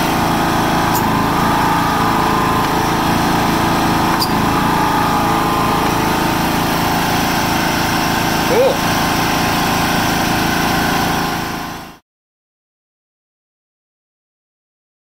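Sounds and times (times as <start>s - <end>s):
lawn tractor engine running: 0.0s - 12.0s.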